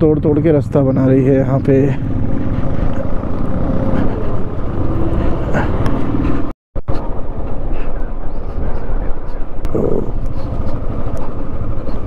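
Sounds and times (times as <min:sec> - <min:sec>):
road noise: 0:00.0 - 0:12.0
motorcycle engine: 0:01.2 - 0:06.5.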